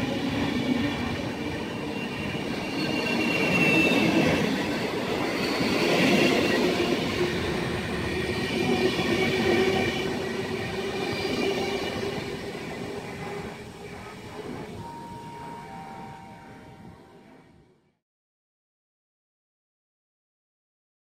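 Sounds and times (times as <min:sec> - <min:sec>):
train wheels rumbling: 0:00.0 - 0:15.7
train wheels squealing: 0:00.0 - 0:16.9.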